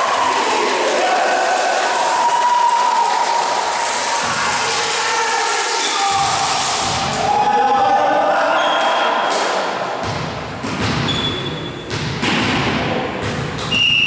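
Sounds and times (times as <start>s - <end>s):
ball thumping on gym floor: 10.0s - 13.8s
shoe squeaks: 11.0s - 11.9s
steady high whistle: 13.7s - 14.0s.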